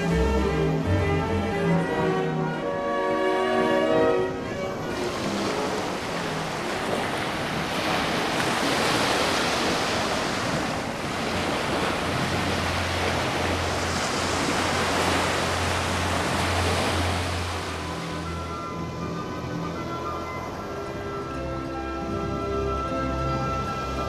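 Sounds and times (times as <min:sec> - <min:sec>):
ocean surf washing onto beach: 0:03.2 - 0:18.9.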